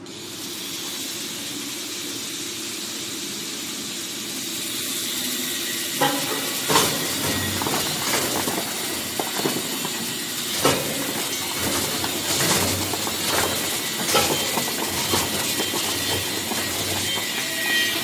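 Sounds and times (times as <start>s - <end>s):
shredder running: 0.0s - 18.0s.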